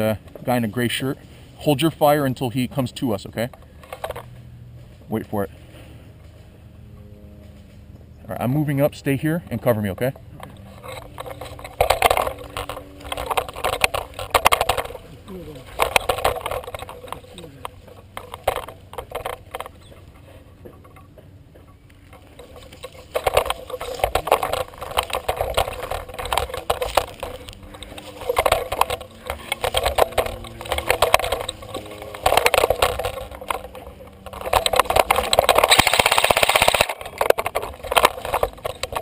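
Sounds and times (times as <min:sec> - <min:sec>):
brush rustling: 0:10.3 - 0:20.9, 0:21.8 - 0:39.0
footsteps crunching on dry leaves: 0:22.4 - 0:36.9.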